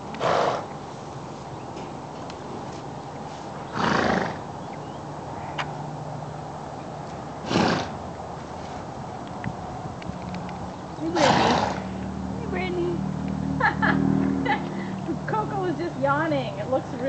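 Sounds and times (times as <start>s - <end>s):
horse blowing through nostrils: 0.2s - 0.7s, 3.7s - 4.4s, 7.4s - 8.0s.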